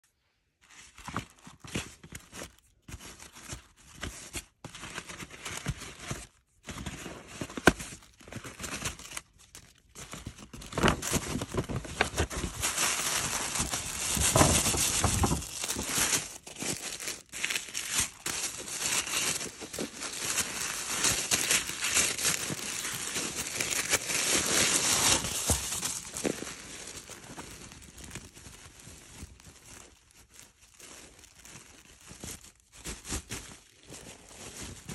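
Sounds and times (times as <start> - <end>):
paper packaging rustling: 0.6 - 34.9
cloth bag handled: 10.8 - 30.0.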